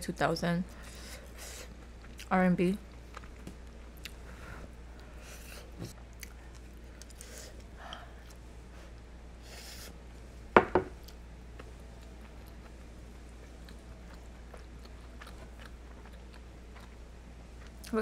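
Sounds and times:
quiet chewing of food: 0:02.9 - 0:09.1, 0:11.0 - 0:18.0
tableware knocking: 0:10.6 - 0:11.0.

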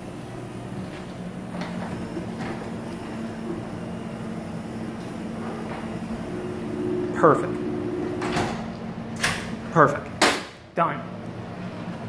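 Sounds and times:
garage door opener motor hum: 0:00.0 - 0:10.2.

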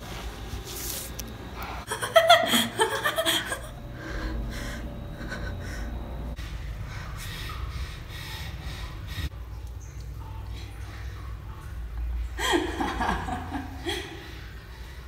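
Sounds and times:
person breathing heavily: 0:03.9 - 0:09.4.

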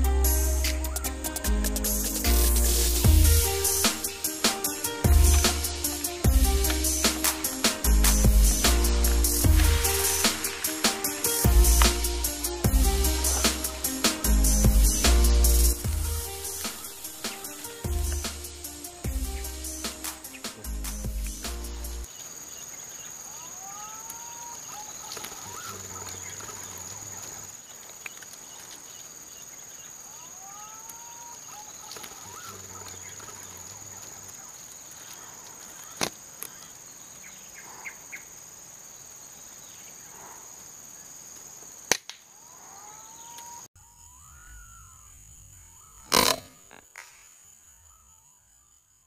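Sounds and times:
insect drone: 0:00.0 - 0:49.0
bird whistled call: 0:42.8 - 0:46.6.

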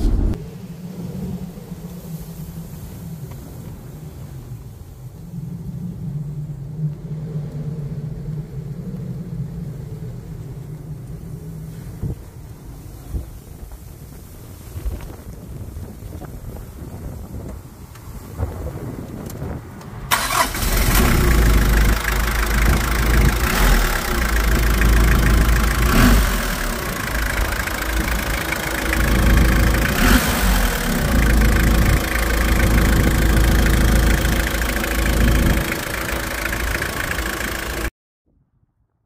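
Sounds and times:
diesel engine starting and idling: 0:20.1 - 0:37.9.

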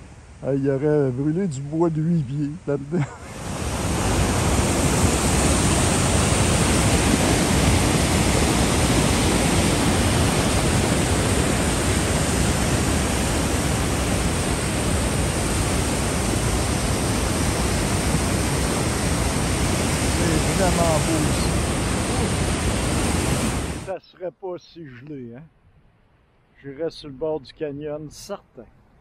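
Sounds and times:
river rapids rushing over boulders: 0:03.2 - 0:23.9.

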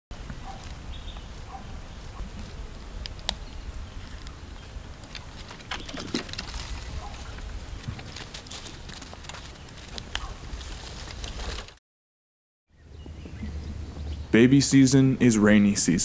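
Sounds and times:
rustles: 0:00.2 - 0:11.8
low rumble: 0:12.8 - 0:14.4.

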